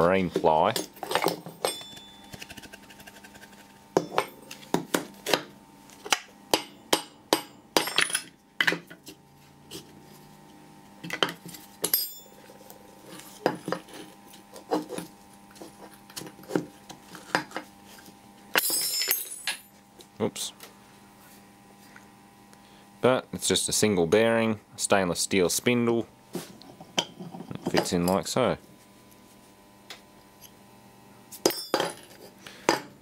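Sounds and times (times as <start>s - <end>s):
faint steady hum: 0.0s - 33.0s
metal tools knocking on workbench: 31.4s - 32.0s.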